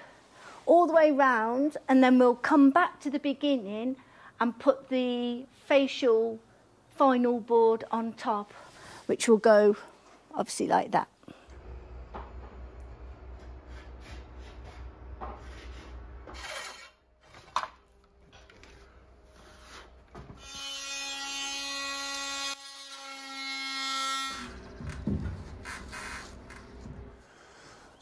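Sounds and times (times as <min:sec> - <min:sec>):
electric power tool running: 0:11.5 - 0:13.7.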